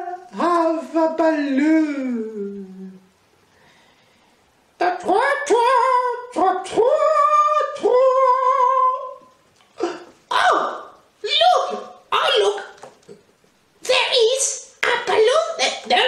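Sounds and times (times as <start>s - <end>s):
lower voice: 0.0s - 3.1s, 4.8s - 12.8s
high-pitched puppet voice singing: 4.8s - 9.3s.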